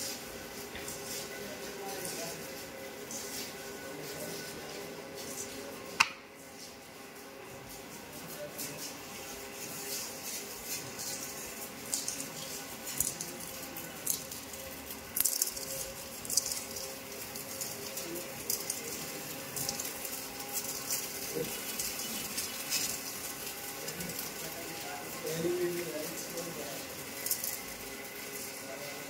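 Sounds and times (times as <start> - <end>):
machinery humming: 13.8 - 29.0.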